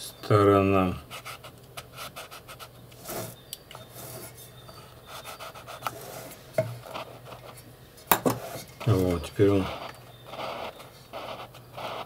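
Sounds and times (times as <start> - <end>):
hand tool scraping and rubbing: 3.0 - 4.5.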